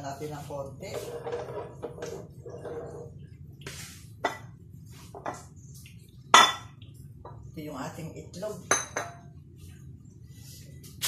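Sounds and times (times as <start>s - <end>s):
low steady hum: 0.0s - 11.0s
dishes clinking on counter: 4.2s - 5.5s, 6.3s - 7.4s, 8.6s - 9.3s.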